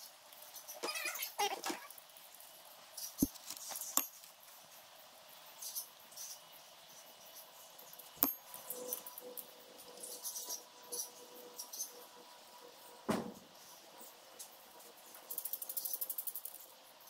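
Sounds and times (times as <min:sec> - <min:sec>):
light scraping and handling: 0:03.2 - 0:04.2
hand tools clicking on metal: 0:08.2 - 0:08.5.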